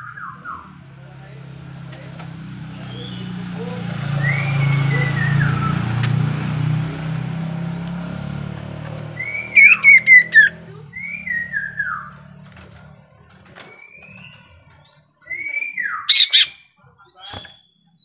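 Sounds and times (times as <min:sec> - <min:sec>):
songbird whistling phrases: 0:02.8 - 0:06.0, 0:09.1 - 0:12.3, 0:13.6 - 0:18.0.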